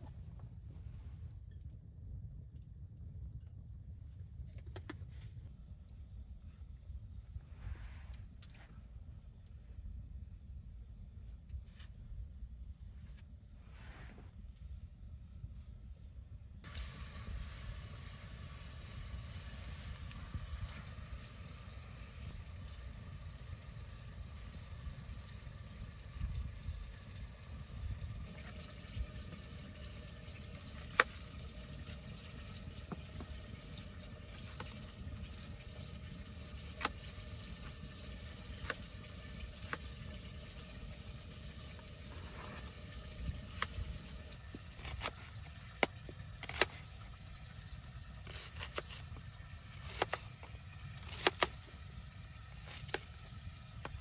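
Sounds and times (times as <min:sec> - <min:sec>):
low steady rumble: 0:00.0 - 0:54.0.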